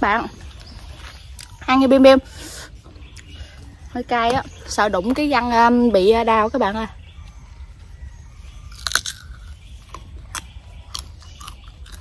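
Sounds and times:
crunching and chewing mango: 0.4 - 1.7, 7.2 - 12.0.

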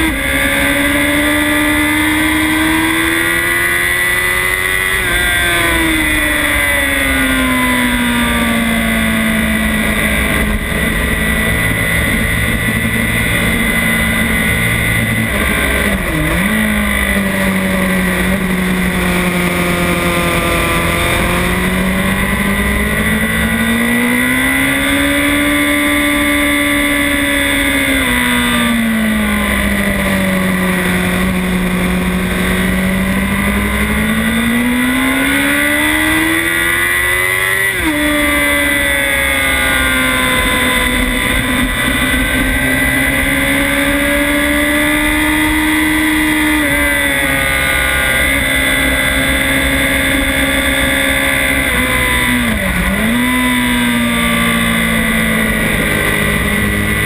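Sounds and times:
motorcycle engine at speed: 0.0 - 57.0.

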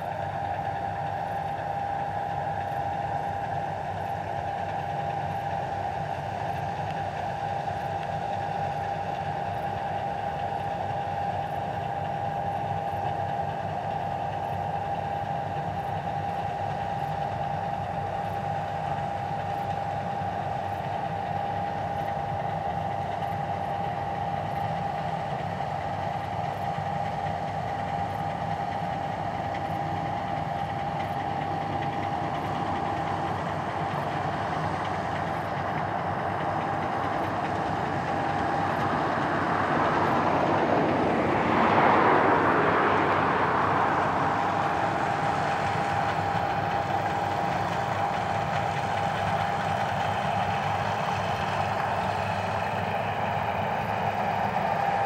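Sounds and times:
combine harvester engine rumble: 0.0 - 55.0
high whine: 30.2 - 50.8.

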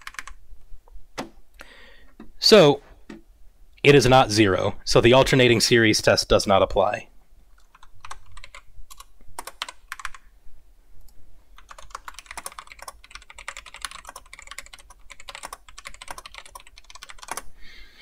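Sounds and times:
computer keyboard typing: 0.0 - 0.4, 7.6 - 10.2, 11.6 - 17.5.

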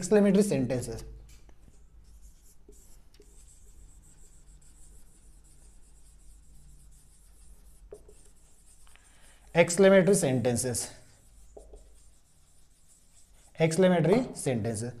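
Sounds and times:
marker squeaking on whiteboard: 1.5 - 9.0, 11.1 - 14.4.

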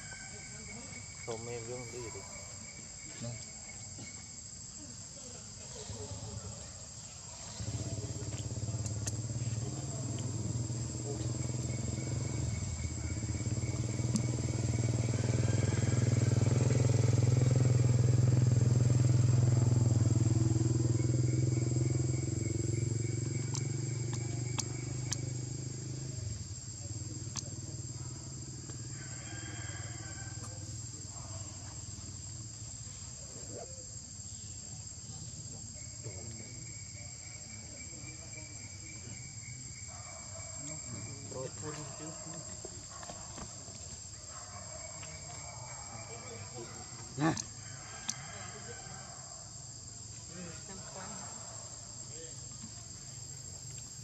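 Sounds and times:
insects shrilling: 0.0 - 54.0
vehicle engine humming: 7.4 - 28.9.

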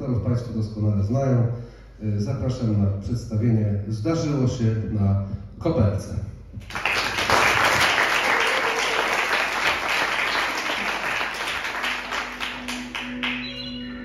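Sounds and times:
audience applauding: 6.6 - 13.9
soft music with held tones: 11.9 - 14.0.

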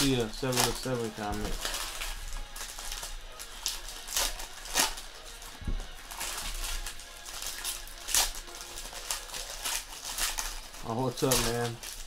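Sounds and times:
foil wrappers crinkling and tearing: 0.0 - 12.0.

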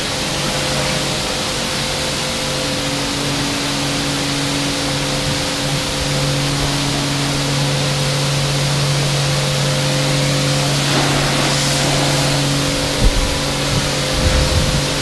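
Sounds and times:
pressure washer hum: 0.0 - 15.0
foam lance hissing: 9.7 - 15.0.

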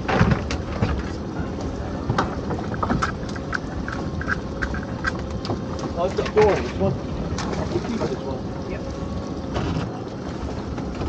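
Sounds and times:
lobster pot clicks and rattles: 2.7 - 6.8.

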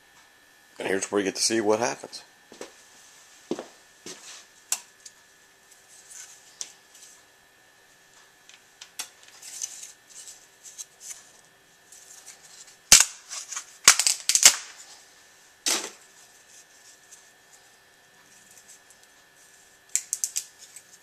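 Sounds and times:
hard plastic cracking and snapping: 12.9 - 14.8, 19.9 - 20.8.

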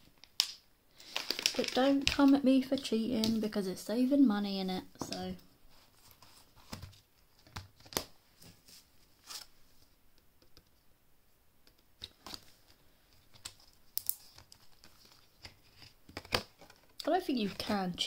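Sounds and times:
banknotes rustling: 1.0 - 3.5.

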